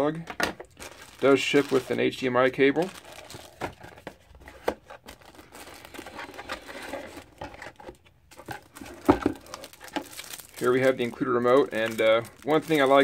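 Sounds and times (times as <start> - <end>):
plastic bag crinkling: 0.6 - 3.9, 5.0 - 7.4, 8.3 - 13.0.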